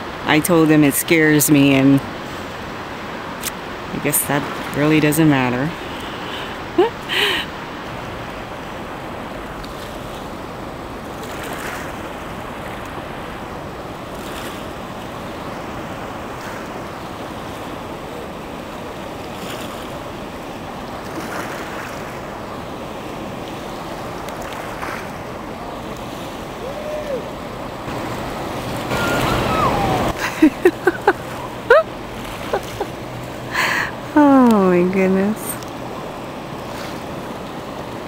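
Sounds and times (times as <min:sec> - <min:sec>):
river rushing: 0:00.0 - 0:38.0
wind buffeting microphone: 0:22.0 - 0:33.2.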